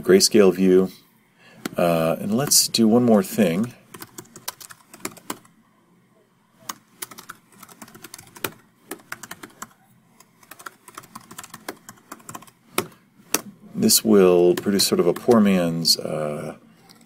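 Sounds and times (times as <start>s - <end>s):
computer keyboard typing: 3.9s - 5.5s, 6.6s - 13.5s, 14.5s - 15.6s.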